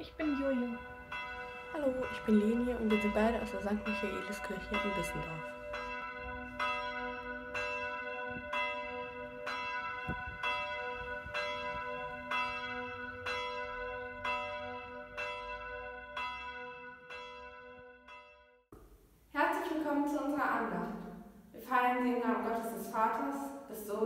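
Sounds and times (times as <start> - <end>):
church bell ringing: 0.0 - 18.7.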